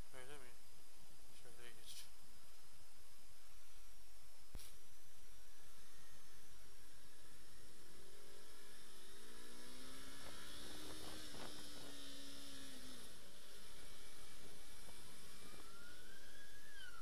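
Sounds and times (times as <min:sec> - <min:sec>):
motorcycle engine running: 0:05.2 - 0:17.0.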